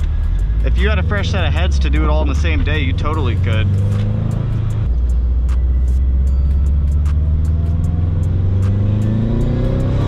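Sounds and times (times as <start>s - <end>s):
car engine droning: 0.0s - 10.0s.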